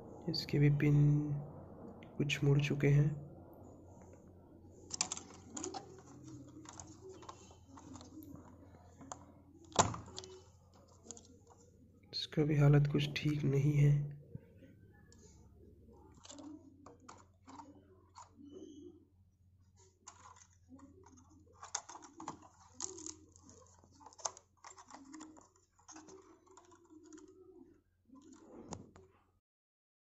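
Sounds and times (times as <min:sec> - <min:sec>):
hands handling keyboard parts: 0:03.9 - 0:12.0, 0:15.9 - 0:18.9, 0:19.6 - 0:29.1.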